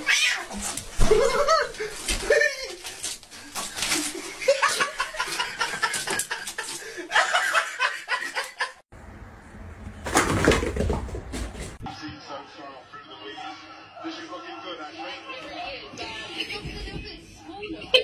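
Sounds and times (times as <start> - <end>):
person laughing: 1.0 - 2.9.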